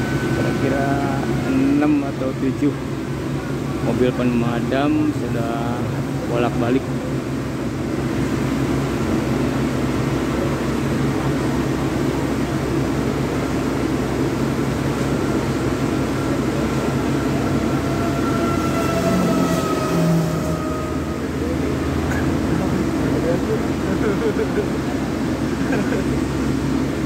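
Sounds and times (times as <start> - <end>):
diesel engines rumbling: 0.0 - 27.0
faint high falling tone: 15.9 - 22.4.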